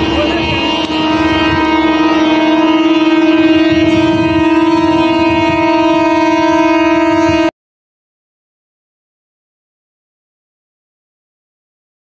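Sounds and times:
train air horn: 0:00.0 - 0:07.5
train rumbling: 0:00.0 - 0:07.5.

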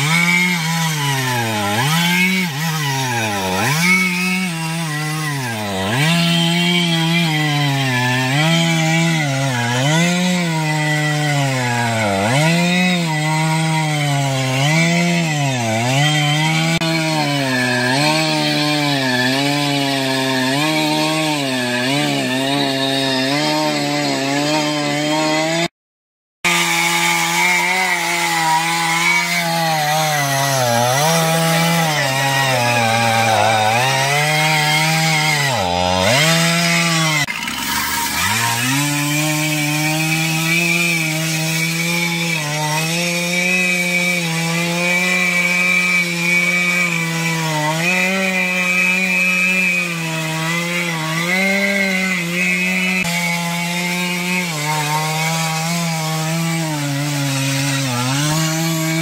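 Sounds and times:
chainsaw cutting wood: 0:00.0 - 0:25.7, 0:26.4 - 0:59.0.

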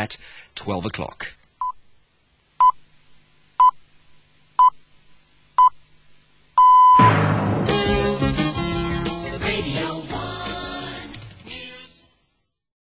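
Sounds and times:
music: 0:07.0 - 0:12.6.

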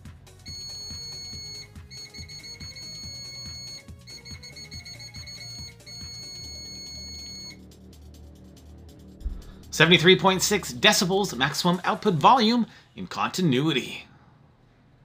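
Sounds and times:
background music with steady beat: 0:00.0 - 0:12.8
multimeter continuity beeps: 0:00.5 - 0:07.6.

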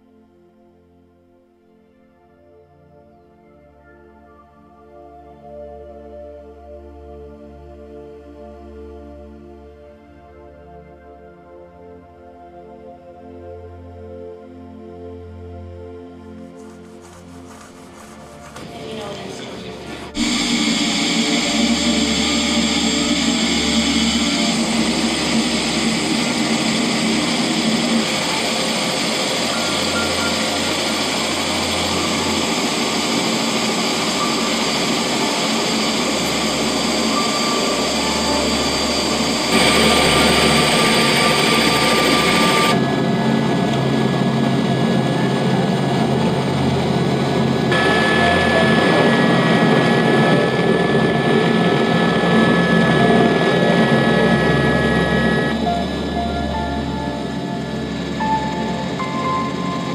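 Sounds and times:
helicopter engine and rotor: 0:16.4 - 0:59.9.

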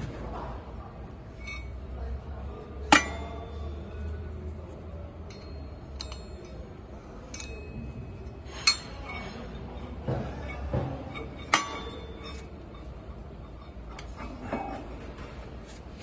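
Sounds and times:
metal-on-metal ringing strikes: 0:02.8 - 0:03.8, 0:05.2 - 0:12.9
light metal clinks: 0:05.2 - 0:14.2.

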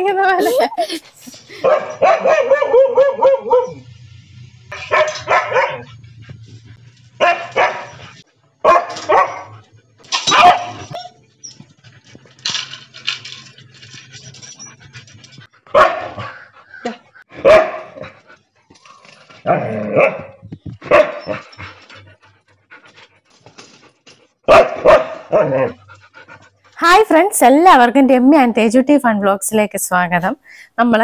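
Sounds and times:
dogs barking: 0:01.6 - 0:03.9, 0:04.7 - 0:06.0, 0:07.2 - 0:11.1, 0:15.7 - 0:18.2, 0:19.4 - 0:21.5, 0:24.5 - 0:25.8.

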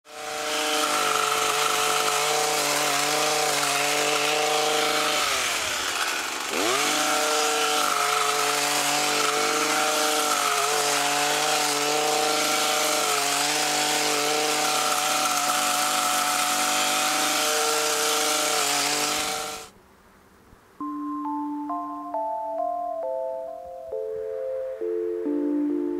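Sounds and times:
hedge trimmer engine revving: 0:00.1 - 0:19.7.

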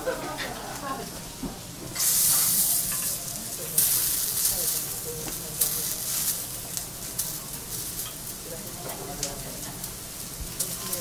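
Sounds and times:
shrimp sizzling on a hot griddle: 0:00.0 - 0:11.0.

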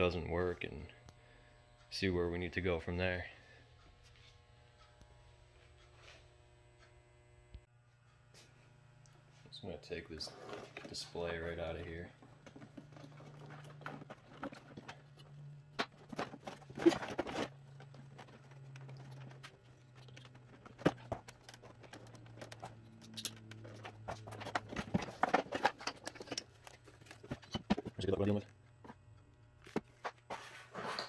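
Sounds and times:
plastic parts clicking and rattling: 0:10.5 - 0:30.2.

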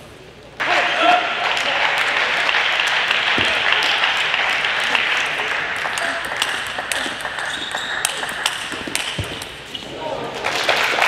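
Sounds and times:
table tennis ball clicking: 0:05.8 - 0:09.7.

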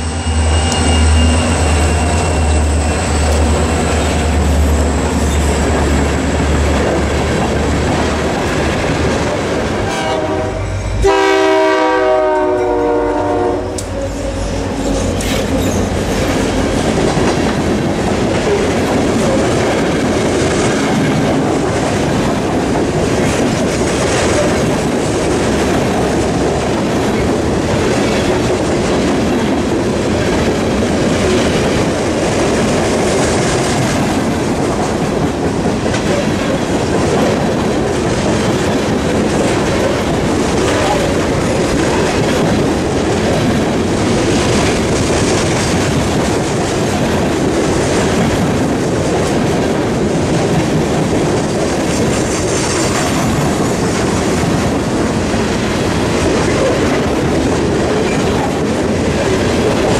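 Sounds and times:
diesel locomotive engine rumble: 0:00.0 - 0:59.9
train wheels clattering on rails: 0:00.0 - 0:59.9
locomotive horn: 0:09.8 - 0:15.1.

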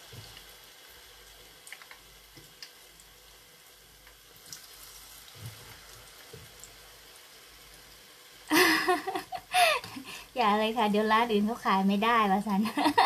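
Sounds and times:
fritters sizzling in hot oil: 0:00.0 - 0:13.0
small pops and soft knocks: 0:05.3 - 0:06.7.

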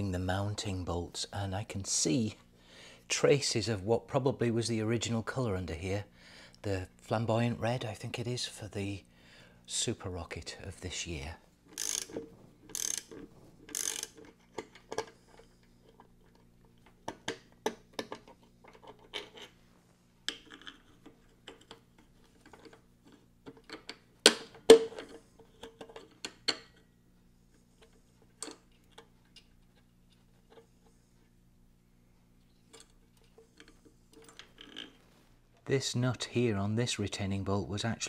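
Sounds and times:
metal tools clicking and clinking: 0:11.7 - 0:16.5.

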